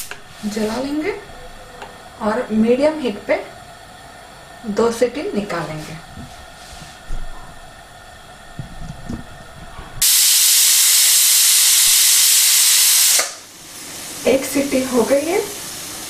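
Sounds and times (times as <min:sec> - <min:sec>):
pressure cooker whistle hissing: 0:10.0 - 0:13.5.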